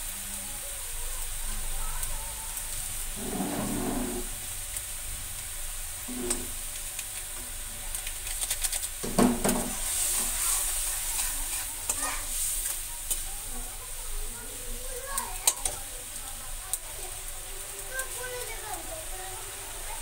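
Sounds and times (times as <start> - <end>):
gravy sizzling in pan: 0.0 - 20.0
metal spatula scraping pan: 3.1 - 4.4, 6.1 - 6.6, 9.4 - 13.2.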